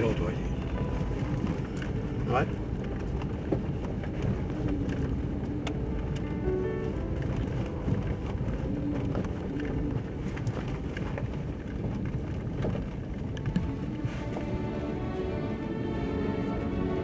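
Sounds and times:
knocks and rattles over bumps: 0.0 - 17.0
vehicle engine and rolling rumble: 0.0 - 17.0.

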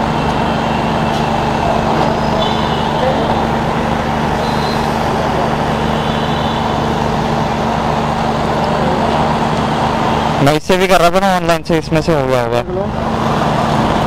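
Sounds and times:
vehicle engine idling: 0.0 - 10.5
faint voices: 1.1 - 7.2.

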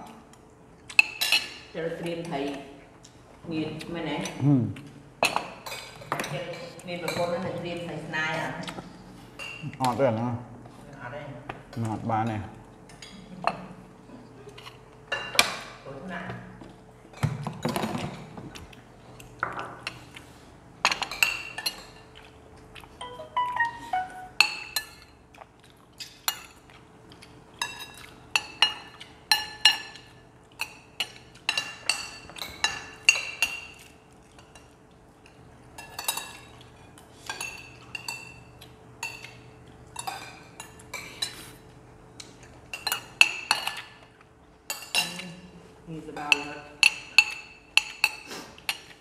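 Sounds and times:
spoons clinking against bowls: 23.0 - 25.2, 27.6 - 34.7, 35.8 - 36.6, 37.3 - 41.5, 42.2 - 44.0, 46.2 - 49.0.

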